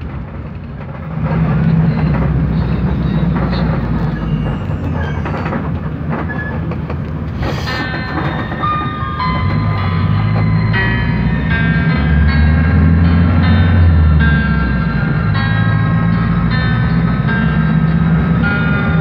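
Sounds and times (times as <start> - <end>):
bus engine running: 0.0 - 19.0
road rumble and rattling: 0.0 - 19.0
music with held notes: 7.9 - 19.0.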